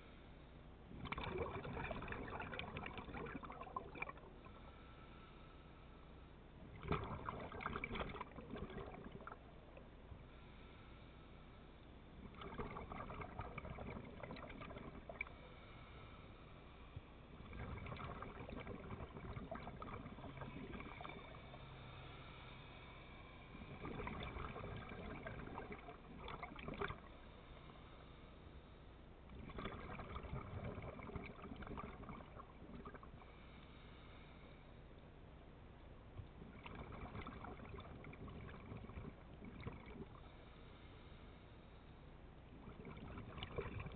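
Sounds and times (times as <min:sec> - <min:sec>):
underwater exhaled bubbles: 0:00.9 - 0:04.7, 0:06.6 - 0:10.1, 0:12.1 - 0:16.0, 0:16.7 - 0:21.8, 0:23.4 - 0:27.7, 0:29.2 - 0:33.3, 0:36.1 - 0:40.5, 0:42.4 - 0:43.9.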